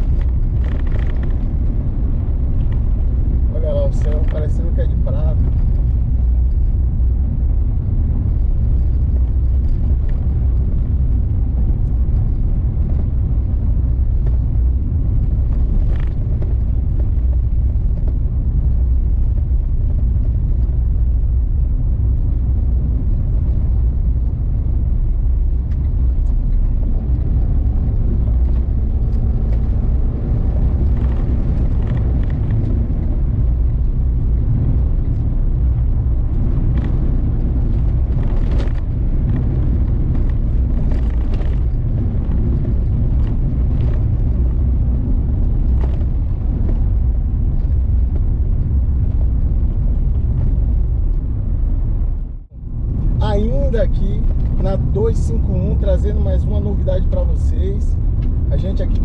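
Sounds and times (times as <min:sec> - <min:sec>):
car cabin road and engine rumble: 0:00.0 - 0:59.0.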